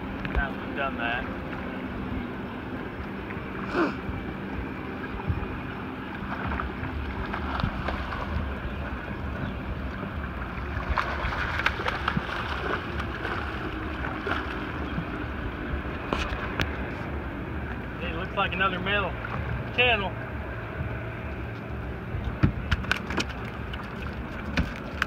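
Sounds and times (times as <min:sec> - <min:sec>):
boat engine rumble: 0:00.0 - 0:25.0
water washing along hull: 0:00.0 - 0:25.0
wind on microphone: 0:04.0 - 0:18.0.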